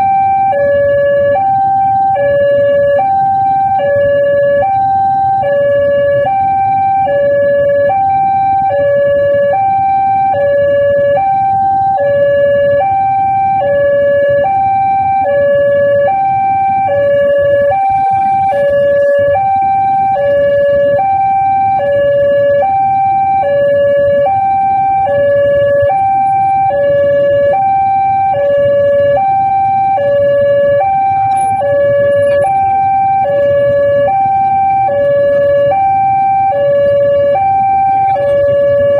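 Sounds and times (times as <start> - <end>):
idling engines rumbling: 0.0 - 38.9
two-tone crossing alarm: 0.0 - 38.9.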